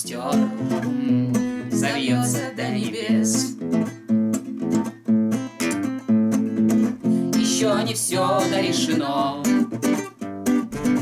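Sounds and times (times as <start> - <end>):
classical guitar strumming chords: 0.0 - 11.0.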